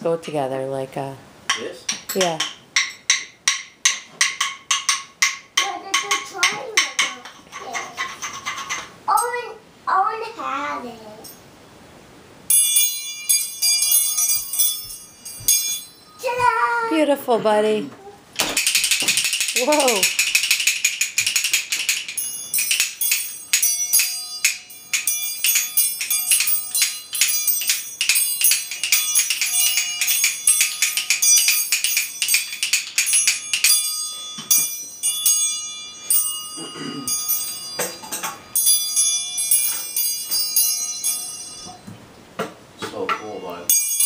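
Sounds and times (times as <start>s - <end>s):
tambourine jingling: 12.5s - 16.9s, 18.6s - 41.9s, 43.0s - 44.0s
child calling out: 16.2s - 17.0s
toy xylophone struck with mallet: 18.5s - 41.9s.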